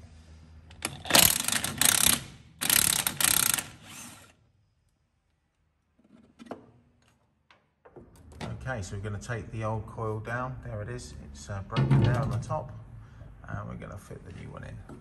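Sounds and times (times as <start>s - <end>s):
impact wrench hammering: 0.8s - 3.9s.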